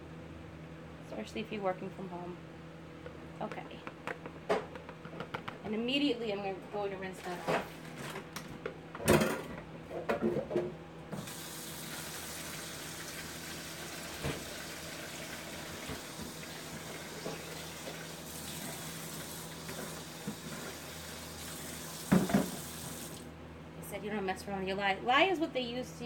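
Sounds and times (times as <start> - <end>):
tap running into sink: 14.1 - 14.7, 22.0 - 23.2.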